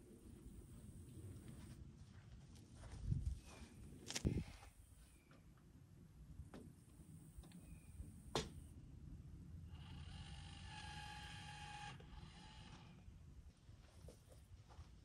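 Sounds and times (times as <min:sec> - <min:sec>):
cordless drill running: 0:09.7 - 0:13.0.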